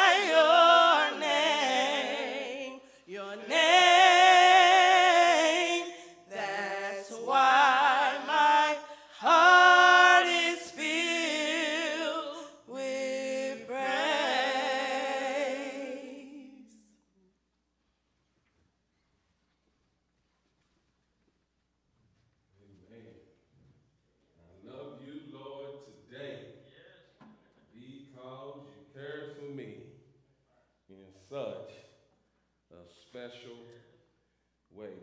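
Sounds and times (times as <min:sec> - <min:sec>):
a cappella group singing: 0:00.0 - 0:16.9.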